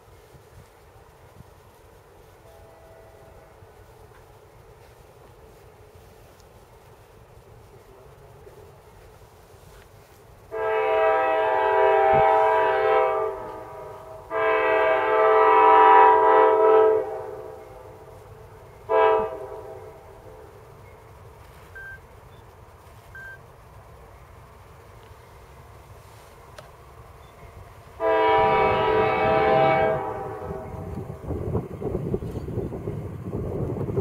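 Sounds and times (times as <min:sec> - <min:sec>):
locomotive air horn blasts: 0:02.3 - 0:03.7, 0:10.5 - 0:18.2, 0:18.8 - 0:20.6, 0:28.0 - 0:31.2.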